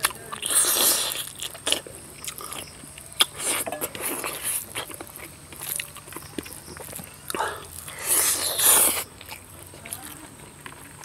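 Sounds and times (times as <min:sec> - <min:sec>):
lip smacks and chewing: 0:00.0 - 0:11.0.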